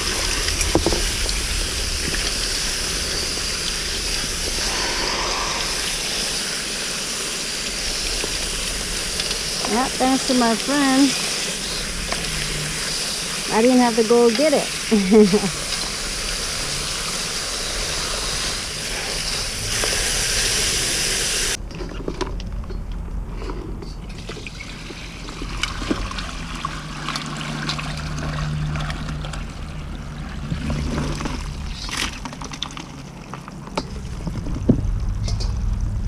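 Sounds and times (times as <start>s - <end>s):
water sloshing and pouring: 0.0s - 20.9s, 24.0s - 36.0s
hose nozzle spraying water: 0.0s - 21.6s.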